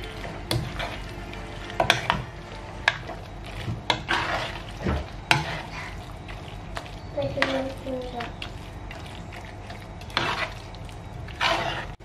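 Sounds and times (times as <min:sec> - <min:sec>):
utensil stirring thick mix in pan: 0:00.0 - 0:12.0
soft wet scraping: 0:02.9 - 0:12.0.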